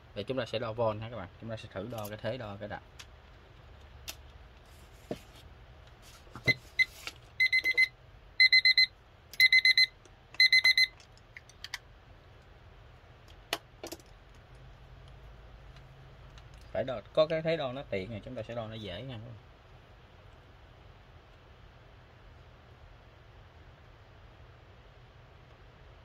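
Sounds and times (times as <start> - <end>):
timer alarm beeping: 7.4 - 10.9.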